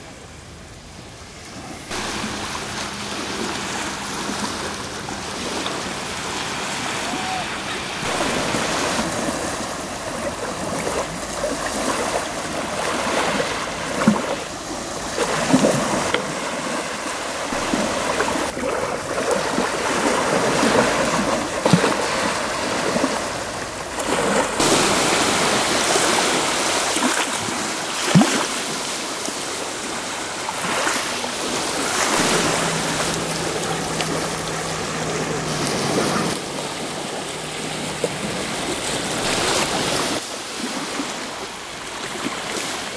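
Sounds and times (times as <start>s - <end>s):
small waves lapping on pebbles: 1.4s - 42.9s
low steady hum: 31.3s - 39.8s.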